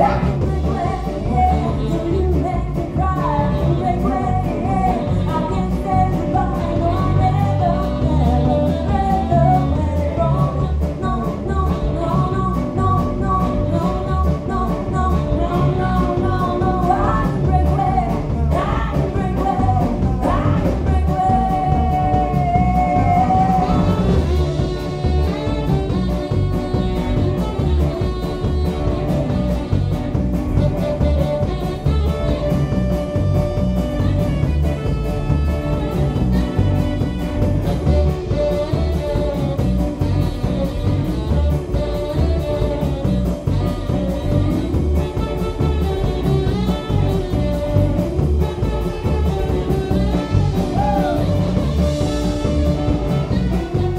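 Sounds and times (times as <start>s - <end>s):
woman singing lead vocal: 0.0s - 29.7s
drum kit: 0.0s - 53.9s
electric guitars: 0.0s - 53.9s
saxophone: 0.0s - 53.9s.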